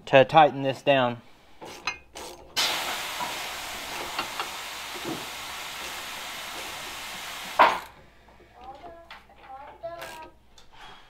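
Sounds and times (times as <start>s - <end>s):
steady hiss: 2.6s - 7.9s.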